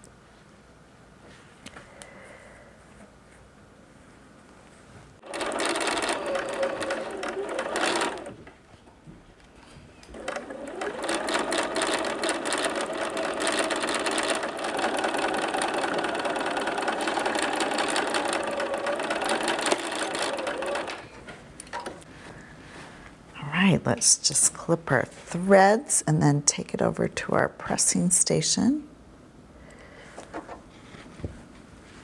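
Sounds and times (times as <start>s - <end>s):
sewing machine stitching: 5.2s - 8.5s, 10.0s - 22.0s.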